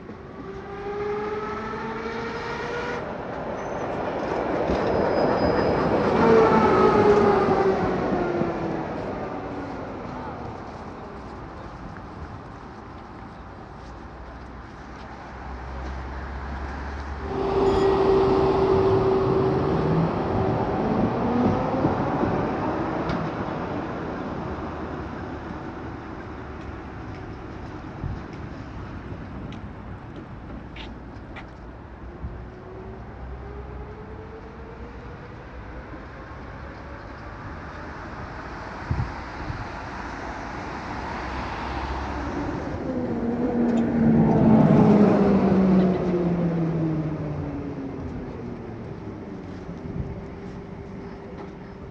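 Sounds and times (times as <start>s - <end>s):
tram motor and gear whine: 0.0s - 51.9s
tram rolling on rails: 0.0s - 51.9s
tram motors whining: 15.9s - 30.6s.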